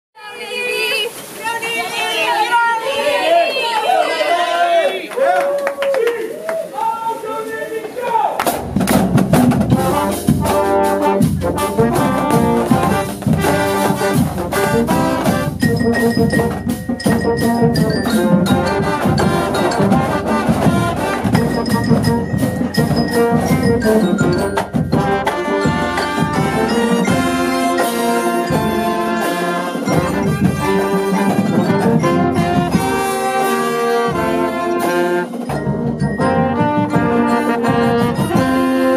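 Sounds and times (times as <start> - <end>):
brass band playing: 8.4 - 38.9
steady drum beat: 8.4 - 38.9.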